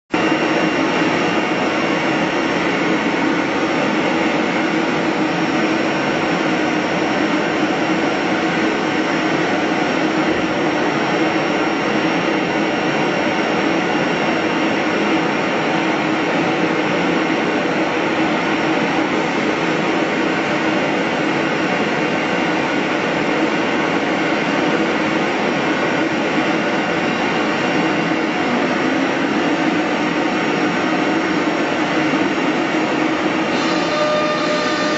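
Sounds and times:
wood router machine drone: 33.4s - 34.9s.

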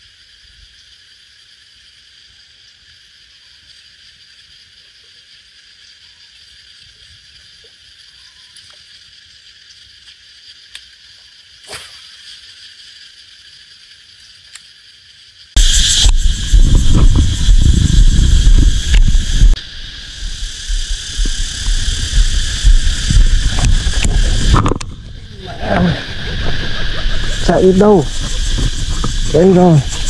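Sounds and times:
buzzing insects: 0.0s - 30.0s.

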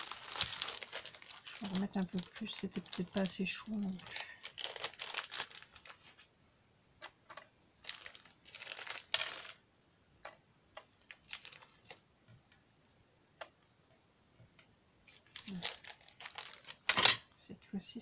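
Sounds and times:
wax beads clinking and rattling: 0.0s - 6.2s, 7.8s - 9.6s, 15.1s - 17.1s.

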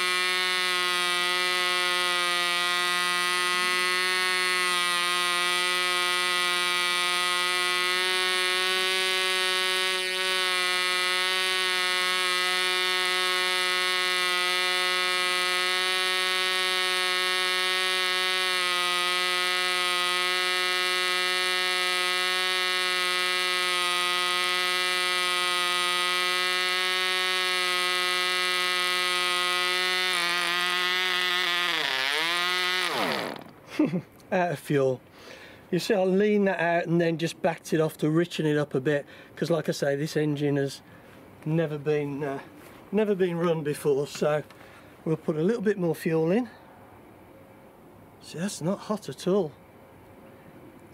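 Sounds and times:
model engine high buzz: 0.0s - 33.9s.

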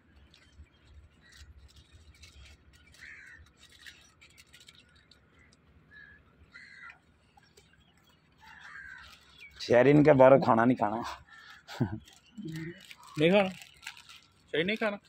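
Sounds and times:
faint crows cawing: 2.4s - 4.1s, 4.8s - 14.3s.

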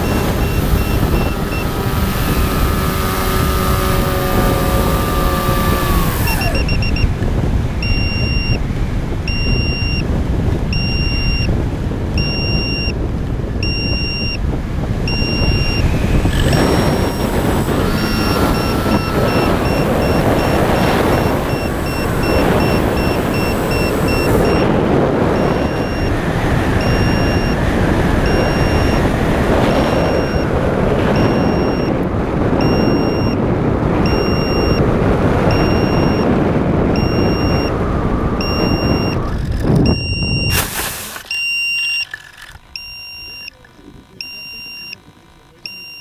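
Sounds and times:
air rushing over camera: 0.0s - 43.5s
short high electronic beep: 32.6s - 33.4s.

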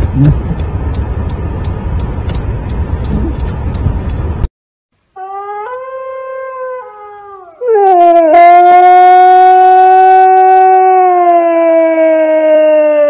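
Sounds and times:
husky howling loudly: 5.2s - 13.0s
husky howling on a phone: 5.2s - 13.0s.

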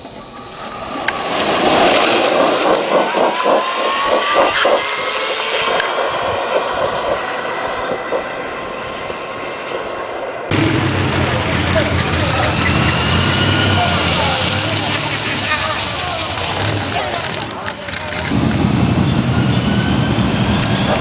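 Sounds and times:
golf cart engine accelerating: 10.5s - 21.0s.

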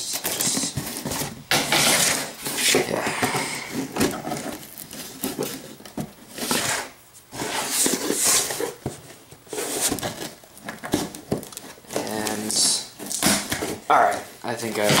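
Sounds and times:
packing tape ripping: 9.6s - 13.8s.

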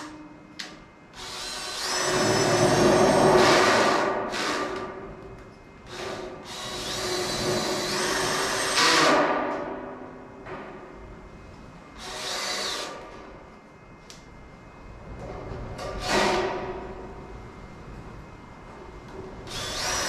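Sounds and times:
cordless drill motor whine: 1.1s - 4.6s, 5.9s - 9.0s, 12.0s - 13.0s, 19.5s - 20.0s.

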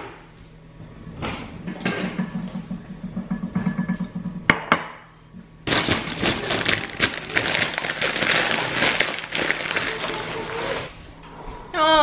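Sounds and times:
crisps pouring into bowl: 5.7s - 10.9s.

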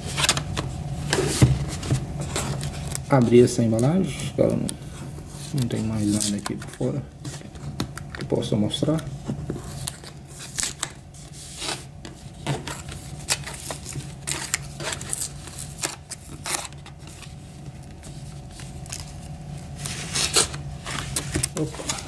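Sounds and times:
tape peeling off cardboard: 18.0s - 22.0s.

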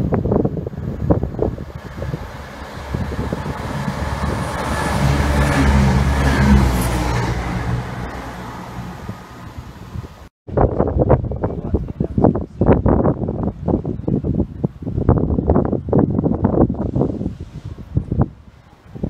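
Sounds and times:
diesel train engine: 0.5s - 10.3s
wheels on rails: 1.4s - 8.3s.

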